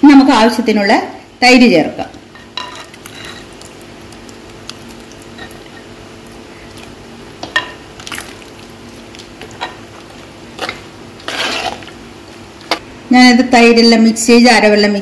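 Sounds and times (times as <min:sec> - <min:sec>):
faint steady hum: 0:00.0 - 0:15.0
wet mix squelching: 0:02.9 - 0:07.3, 0:07.9 - 0:12.9.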